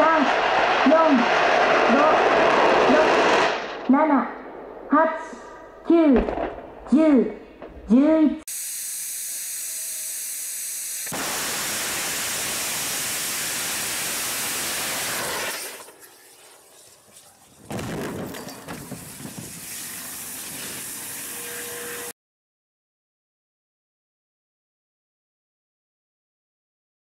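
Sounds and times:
rocket exhaust roar: 0.0 - 4.9, 11.1 - 15.8
rocket crash explosion: 0.3 - 7.9, 11.1 - 15.8, 17.6 - 20.9
rocket engine hiss: 11.1 - 16.0
fire burning: 11.1 - 21.2.

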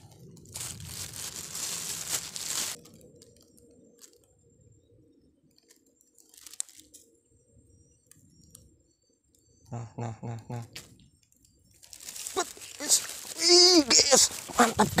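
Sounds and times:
crackling rustle: 0.0 - 4.7, 5.4 - 7.4, 10.7 - 15.0.

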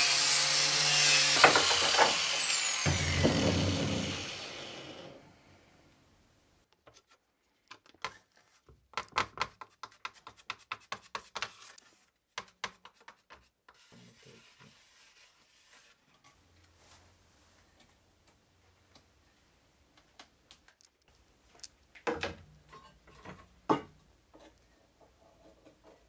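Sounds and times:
angle grinder winding down: 0.0 - 5.3.

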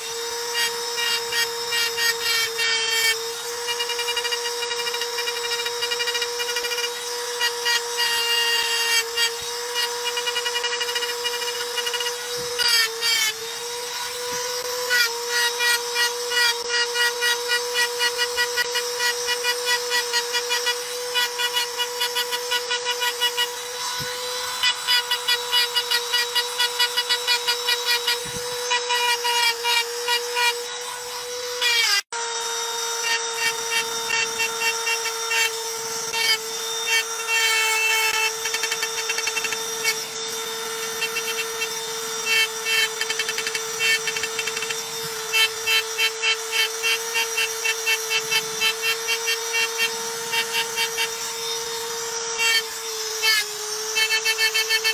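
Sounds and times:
engraving pen whining: 0.0 - 54.9
rasping stone cutting: 0.0 - 54.9.

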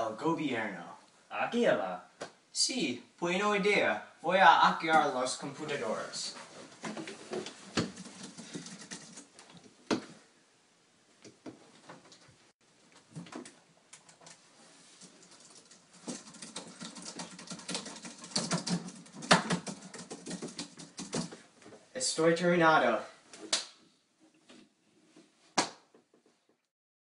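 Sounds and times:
typing on computer keyboard: 7.8 - 9.3, 15.1 - 21.4.

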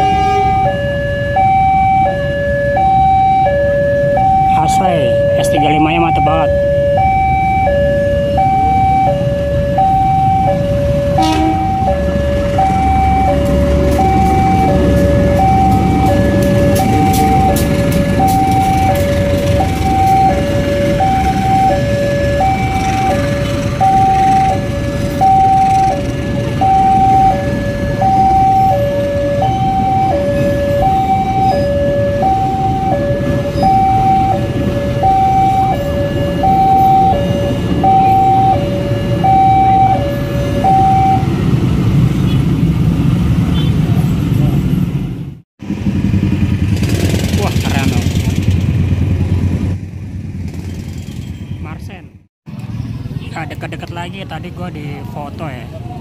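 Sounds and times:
train rumbling past: 0.0 - 1.5, 10.2 - 51.5
level crossing two-tone alarm: 0.0 - 41.3.

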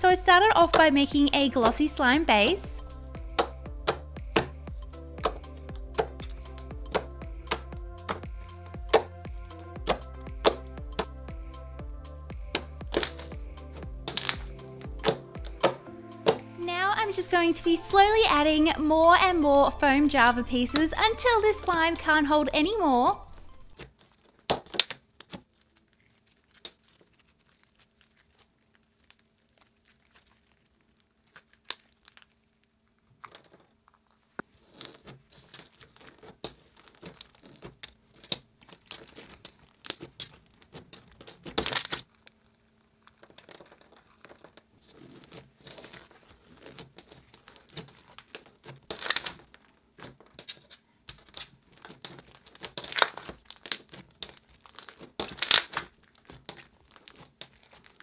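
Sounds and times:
wet crackling and popping: 0.0 - 17.0, 22.8 - 58.0
slime squished by hand: 3.2 - 11.6, 12.3 - 16.5, 23.8 - 33.8, 34.5 - 58.0.

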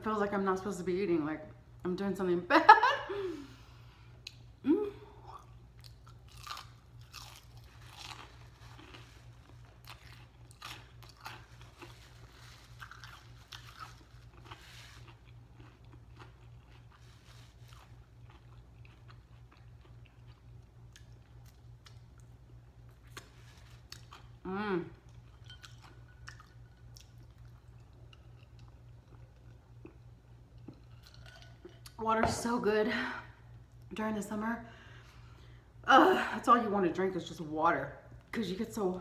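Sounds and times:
steady low hum: 0.0 - 39.0
chewing crunchy fried food: 5.4 - 32.0.

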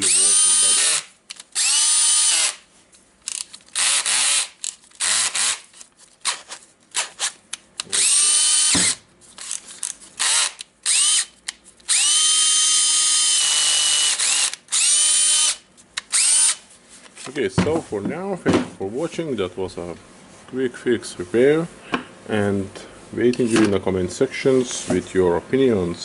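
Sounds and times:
cordless drill motor whining: 0.0 - 2.6, 7.9 - 9.0, 10.2 - 11.3, 11.9 - 16.6.

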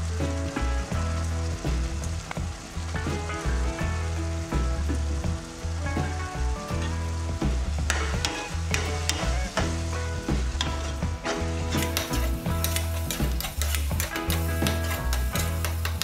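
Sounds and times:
gravy sizzling in a wok: 0.0 - 16.0
soft background music: 0.0 - 16.0
spatula scraping and stirring: 7.9 - 16.0.

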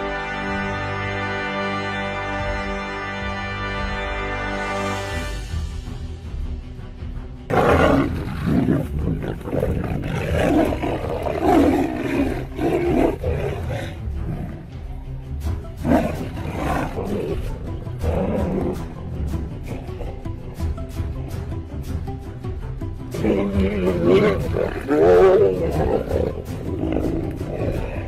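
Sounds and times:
background music: 0.0 - 28.0
big cats roaring: 7.5 - 14.7, 15.8 - 20.8, 23.1 - 28.0.

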